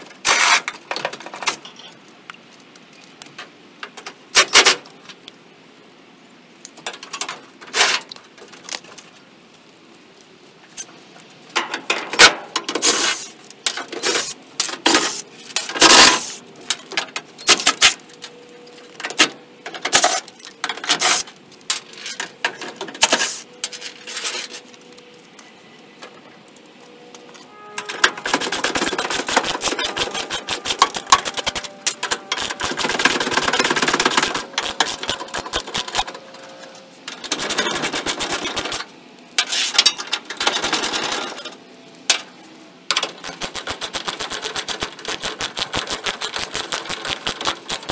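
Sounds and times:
socket ratchet clicking: 28.9 - 36.0, 43.3 - 47.9.

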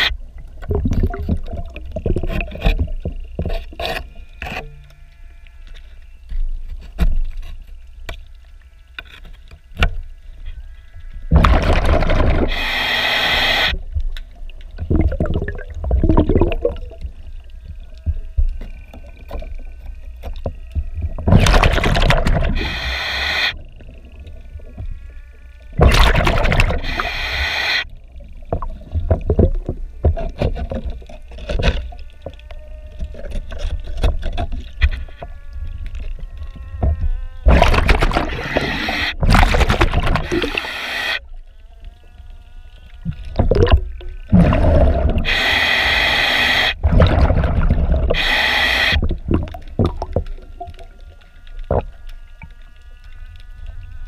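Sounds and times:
exhaled bubbles underwater: 0.0 - 3.4, 11.3 - 12.7, 13.7 - 18.3, 20.3 - 24.9, 25.7 - 27.3, 28.0 - 32.1, 36.8 - 40.7, 43.0 - 51.0.

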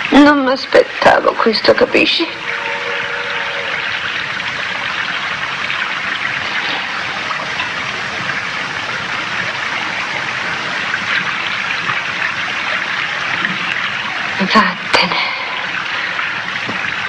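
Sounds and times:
steady rushing noise: 1.9 - 14.2.

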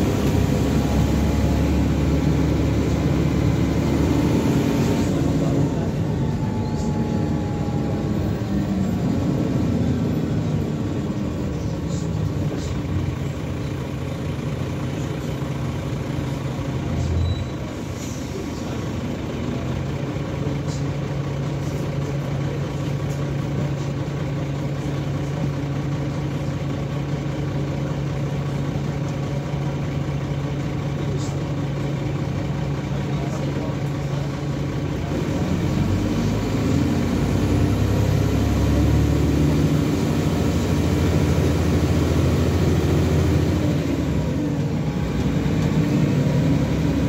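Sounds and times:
bus diesel engine idling: 0.0 - 47.0.

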